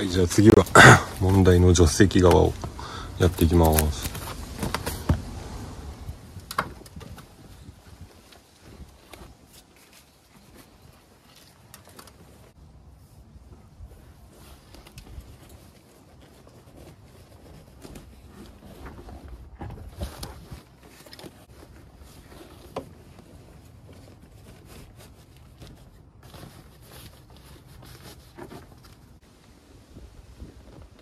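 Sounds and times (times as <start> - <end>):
fabric rustling: 7.3 - 31.0.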